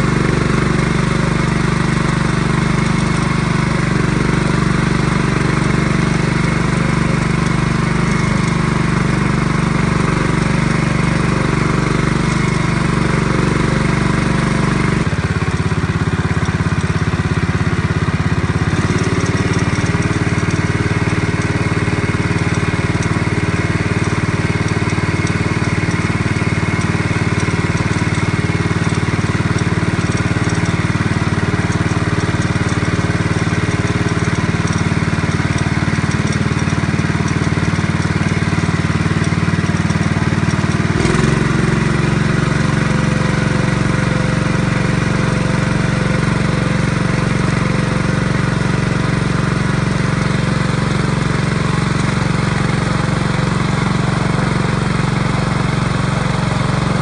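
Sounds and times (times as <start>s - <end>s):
small engine running: 0.0s - 57.0s.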